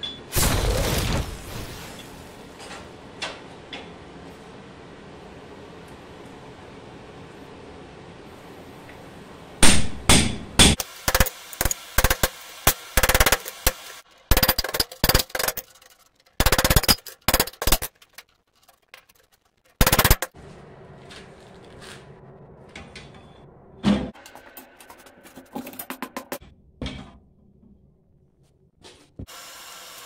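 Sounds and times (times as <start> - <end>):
hammer striking steel punch: 9.6 - 13.8.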